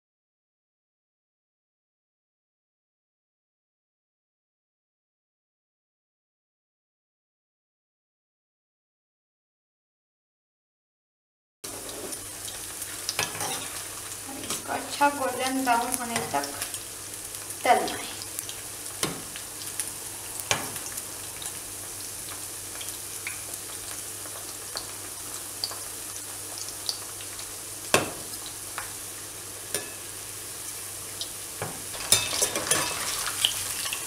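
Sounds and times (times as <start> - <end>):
food sizzling in hot oil: 11.6 - 34.0
metal spoon knocking on pan: 19.0 - 19.3, 27.9 - 28.3.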